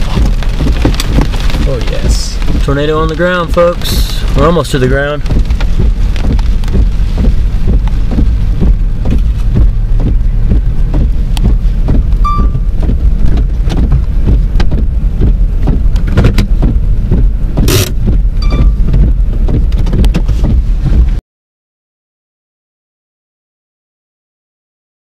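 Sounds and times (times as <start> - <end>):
rain tapping on vehicle: 0.0 - 21.2
wind rumble: 0.0 - 21.2
short beeps: 12.2 - 12.7, 18.4 - 18.8.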